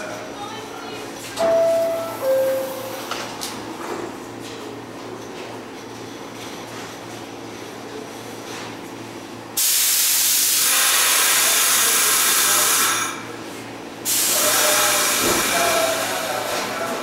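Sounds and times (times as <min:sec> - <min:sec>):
compressed air hissing: 0:09.6 - 0:13.0, 0:14.0 - 0:16.3.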